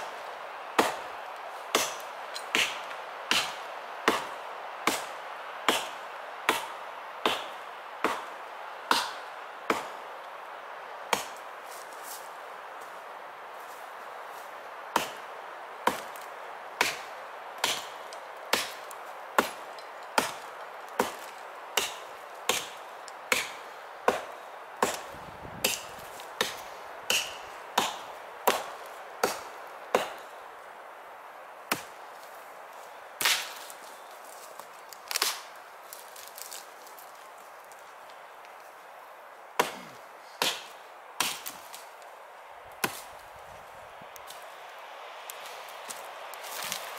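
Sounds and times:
axe chopping log: 0.8s - 1.1s, 1.7s - 5.1s, 5.7s - 8.3s, 8.9s - 10.0s, 11.1s - 11.4s, 15.8s - 16.2s, 16.8s - 20.4s, 21.0s - 30.2s, 31.7s - 32.0s, 33.2s - 33.7s, 39.6s - 41.8s, 42.8s - 43.1s.

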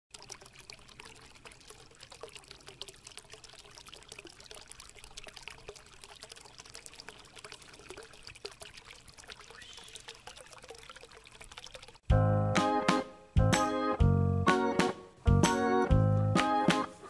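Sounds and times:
water trickling and bubbling: 0.1s - 12.1s.

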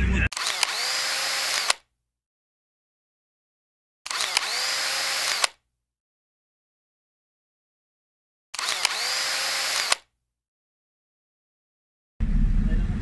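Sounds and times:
camera shutter with motor wind: 0.4s - 1.8s, 4.1s - 5.6s, 8.6s - 10.0s.

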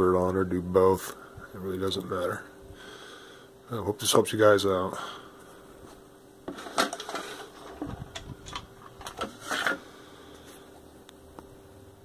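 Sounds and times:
faint steady hum: 0.0s - 12.0s
handling clicks knocks and rustles: 6.5s - 9.8s.

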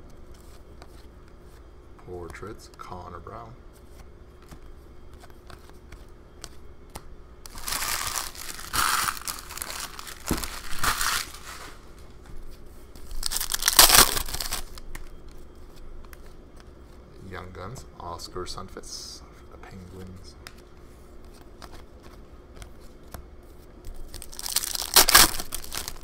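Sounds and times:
foil card pack crinkling and tearing: 7.5s - 11.8s, 13.0s - 15.1s, 23.9s - 26.0s.

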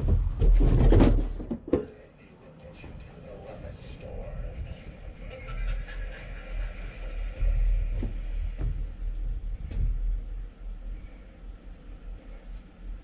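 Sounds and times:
uneven low rumble: 2.4s - 13.0s
footsteps on wooden deck: 7.5s - 10.5s.

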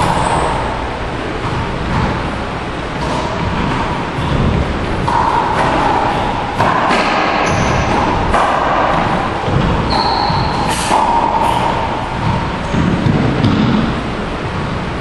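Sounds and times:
steady background hiss: 0.0s - 15.0s
shoe squeak: 9.9s - 11.8s.

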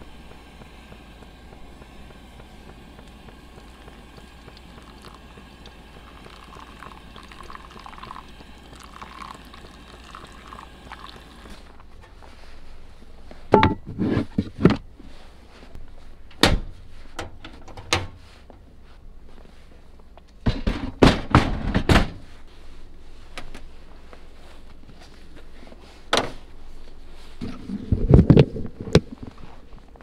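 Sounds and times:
water poured from kettle: 0.9s - 11.7s.

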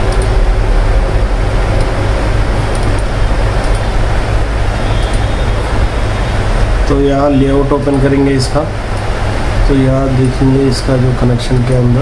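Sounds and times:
low machine rumble: 0.0s - 12.0s.

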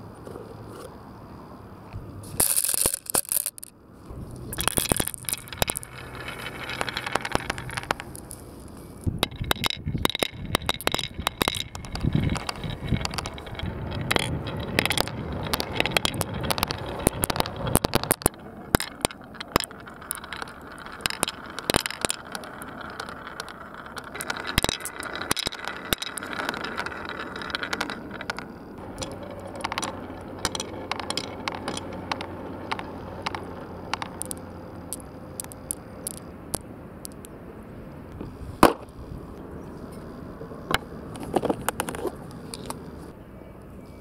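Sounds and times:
marbles colliding knock: 2.4s - 3.7s, 4.3s - 37.4s, 38.6s - 38.9s, 40.7s - 42.9s
marbles rolling on wooden run: 2.4s - 37.4s, 38.1s - 43.1s.

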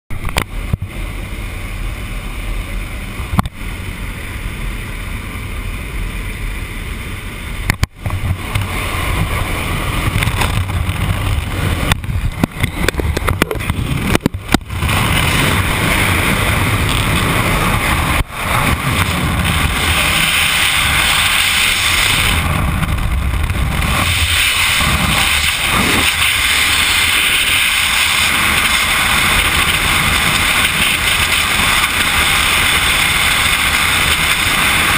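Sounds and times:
freefall wind rush: 0.1s - 34.9s
plane engine and propeller drone: 0.1s - 34.9s
knocks and clicks: 10.1s - 14.7s.

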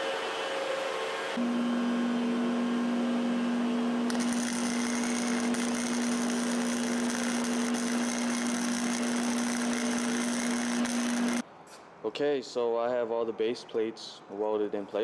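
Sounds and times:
electrical hum: 1.4s - 11.4s
welding arc crackling: 4.1s - 11.4s.

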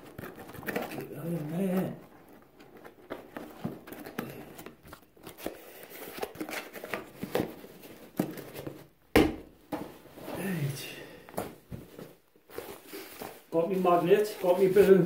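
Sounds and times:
cardboard box being handled: 11.4s - 15.0s.

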